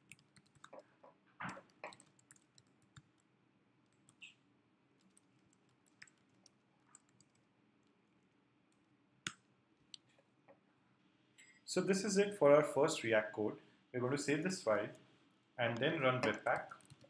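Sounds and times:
computer keyboard clicks: 0.0 - 0.8, 1.4 - 3.2, 5.0 - 7.4, 15.8 - 17.0.

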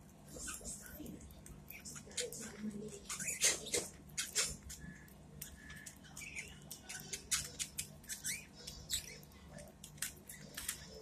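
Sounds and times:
beak nibbling clicks: 1.2 - 11.0.

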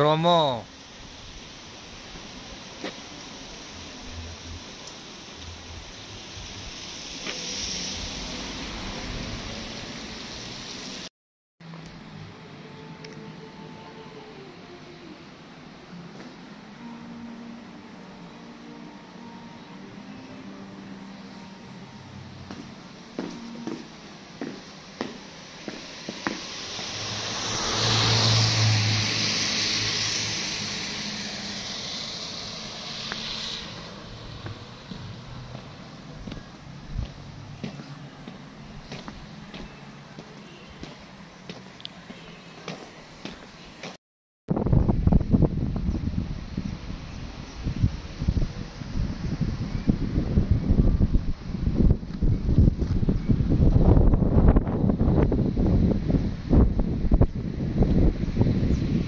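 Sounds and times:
car passing on wet road: 1.1 - 11.1, 22.1 - 41.7.

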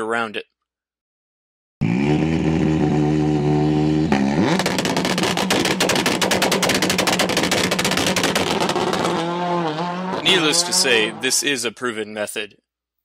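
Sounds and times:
rally car engine revving: 1.8 - 11.6
exhaust popping bangs: 2.0 - 11.4.

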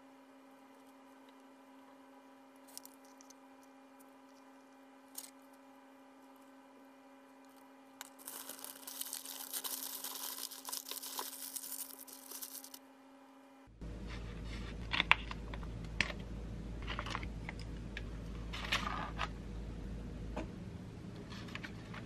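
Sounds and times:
faint steady hum: 0.0 - 22.0
crackly paper rustling: 8.0 - 12.8.

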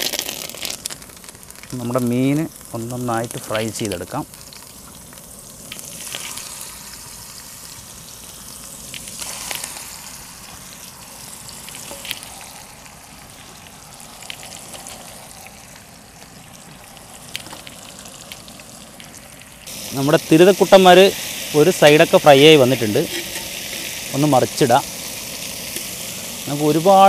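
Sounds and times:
fish frying in hot oil: 0.0 - 27.0.

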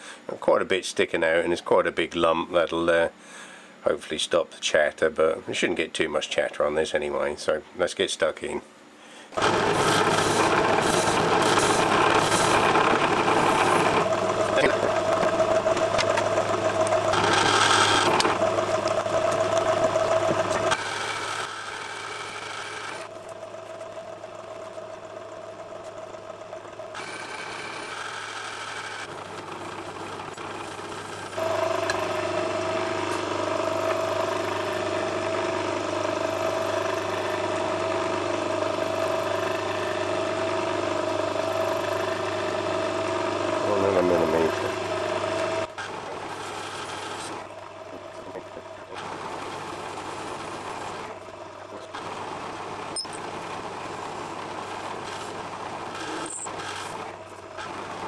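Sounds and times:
tool cutting metal: 9.4 - 23.9, 26.9 - 58.0
metal lathe whine and hum: 9.4 - 58.0.

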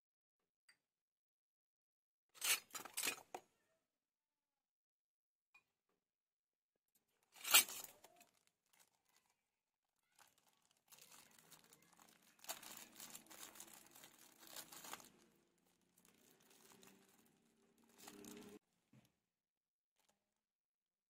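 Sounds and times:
packaging crinkling and rustling: 7.3 - 9.4, 10.0 - 18.6.

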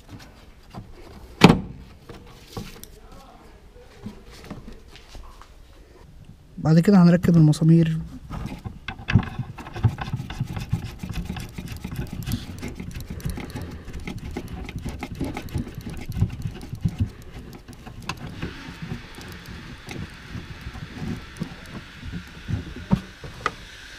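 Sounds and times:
clicks and knocks of screws: 8.9 - 22.4
rustling hiss: 10.6 - 23.9.

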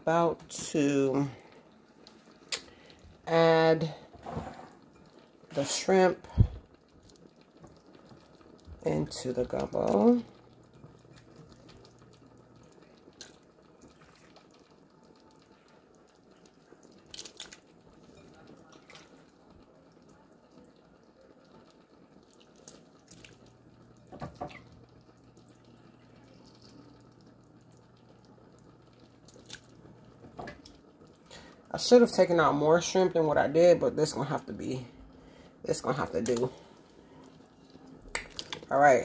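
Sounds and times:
low steady hum: 0.0 - 39.0
wet plops and clicks: 13.2 - 14.6, 17.0 - 17.7, 22.3 - 23.4, 29.2 - 29.8, 38.1 - 38.7.

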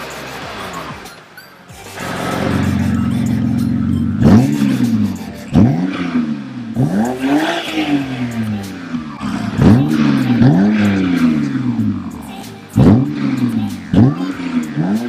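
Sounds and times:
car engine idling and revving: 0.0 - 15.0.

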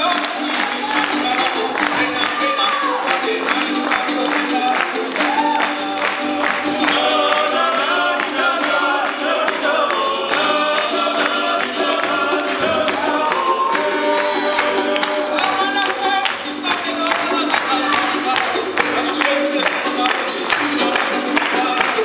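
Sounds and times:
lutes strummed: 0.0 - 22.0
voices singing: 0.0 - 22.0
steady beat: 6.2 - 20.0.

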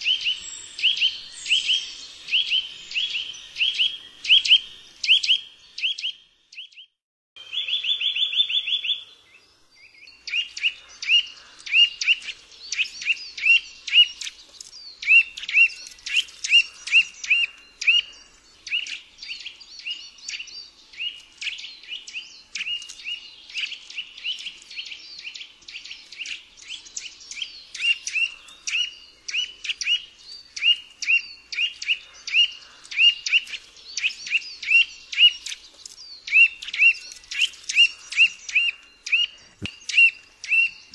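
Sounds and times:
faint high-pitched bird chatter: 0.0 - 40.9
bird trilling and calling: 10.2 - 40.9.

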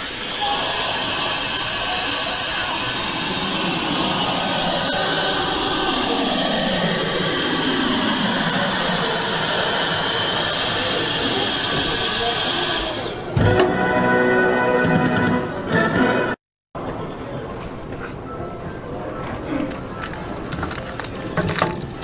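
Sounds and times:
suction blower hiss: 0.0 - 13.4.

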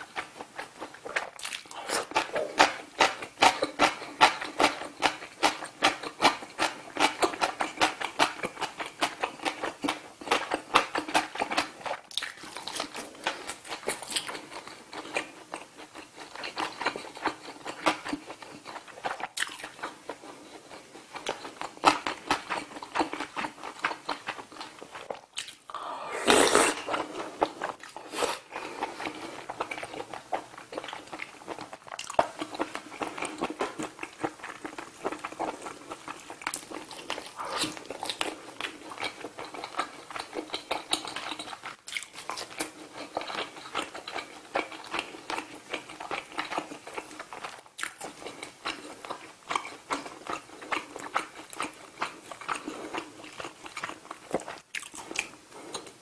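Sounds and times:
person chewing food: 0.0 - 56.0.

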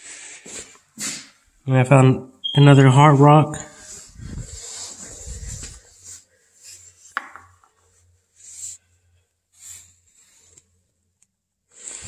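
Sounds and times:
soft rustling swishes: 3.8 - 7.1.

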